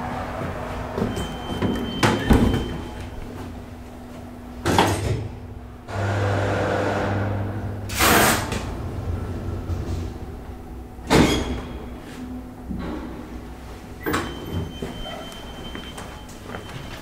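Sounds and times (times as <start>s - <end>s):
elevator doors sliding: 0.0s - 4.2s, 6.0s - 17.0s
elevator door clunks: 0.9s - 3.2s
low motor hum: 5.6s - 11.1s.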